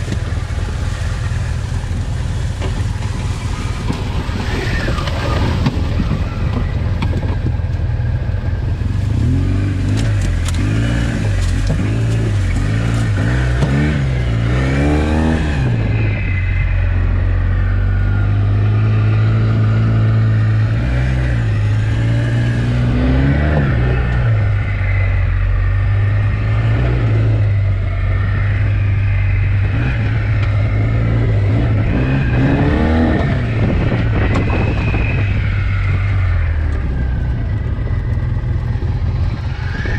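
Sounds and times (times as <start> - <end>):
vehicle engine revving: 0.0 - 39.9.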